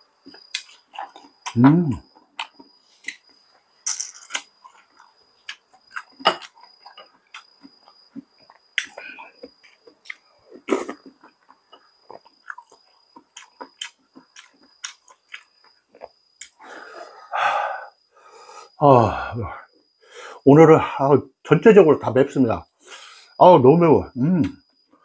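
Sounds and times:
chewing and mouth sounds: 0.2 - 3.4, 4.3 - 16.6.

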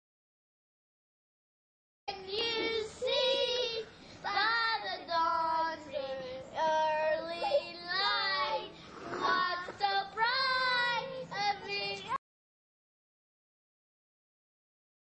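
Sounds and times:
young children singing: 2.1 - 12.2.

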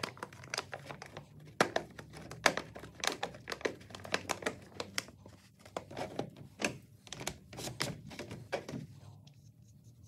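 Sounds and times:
plastic cups and lids clicking: 0.0 - 5.1.

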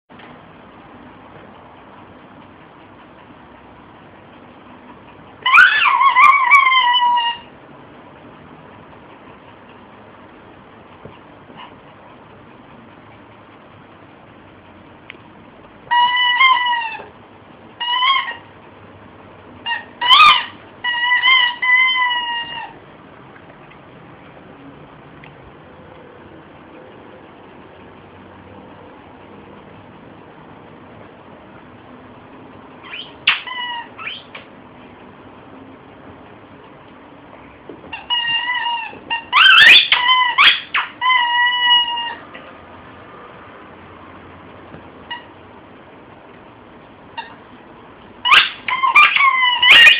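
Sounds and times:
squeaky toy squeaking: 5.4 - 7.5, 15.9 - 17.1, 17.8 - 18.5, 19.6 - 22.8, 32.8 - 34.4, 37.9 - 42.3, 45.0 - 45.4, 47.1 - 47.4, 48.2 - 49.9.

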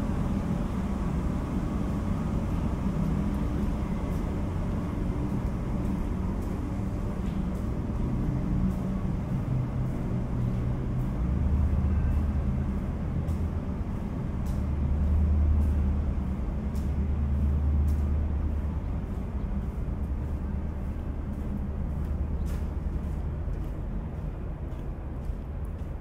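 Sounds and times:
steady low rumble: 0.0 - 26.0
footsteps on stone floor: 16.7 - 26.0.

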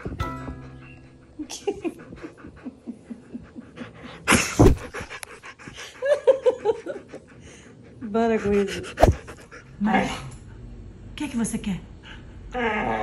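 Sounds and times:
dog panting: 1.3 - 9.9.

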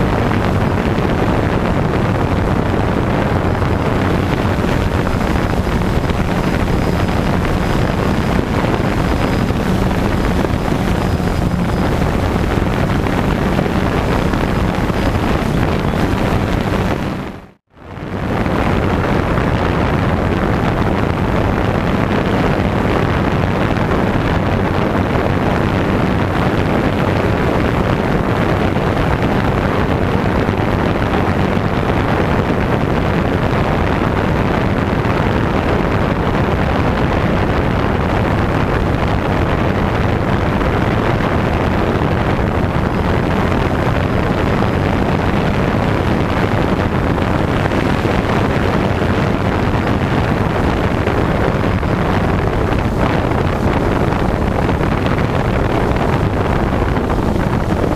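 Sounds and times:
wind buffeting microphone: 0.0 - 57.9
drone propellers whirring: 2.2 - 17.5.

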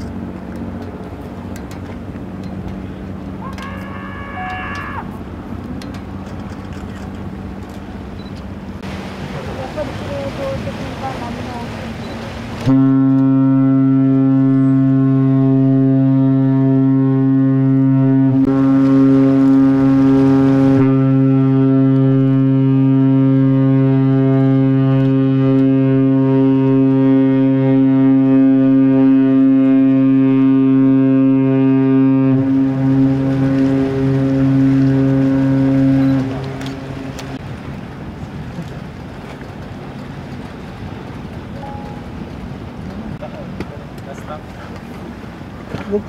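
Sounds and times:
ship horn deep blast: 12.6 - 37.4.

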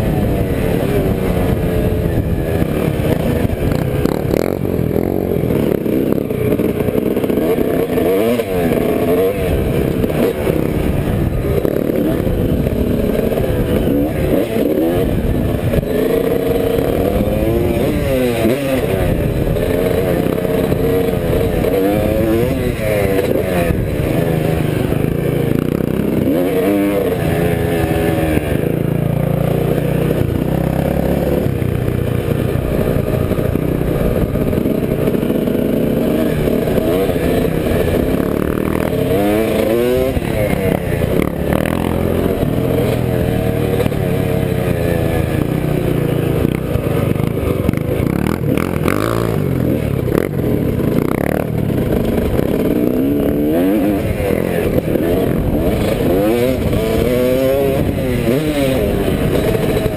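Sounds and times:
wind on microphone: 0.0 - 28.9
off-road engine revving: 0.0 - 59.9.

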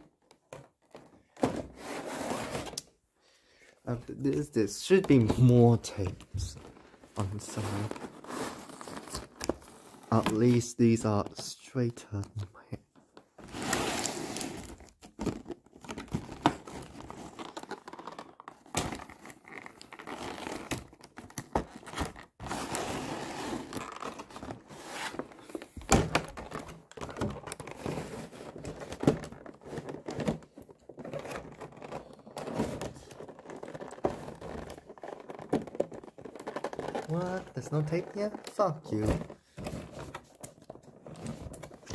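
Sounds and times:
plastic packaging crinkling: 30.8 - 41.9.

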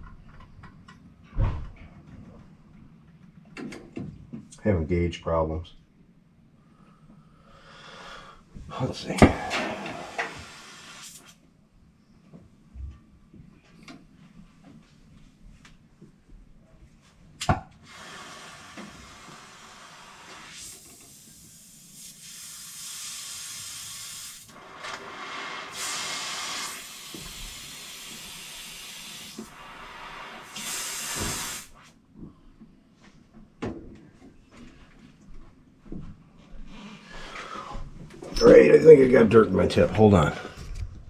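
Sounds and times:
gas torch hissing: 7.8 - 11.4, 17.8 - 31.8.

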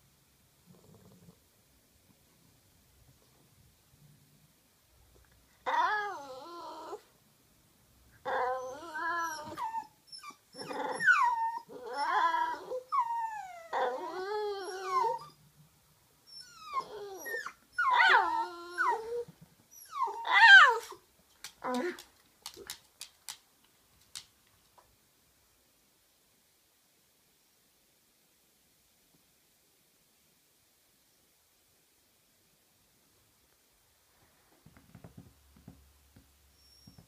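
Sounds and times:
dog whining: 5.6 - 7.1, 8.2 - 15.4, 16.3 - 21.0, 36.5 - 37.0.

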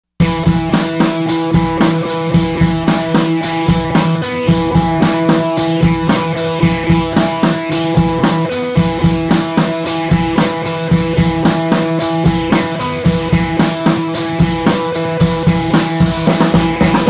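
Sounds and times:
steady drum beat: 0.2 - 17.0.

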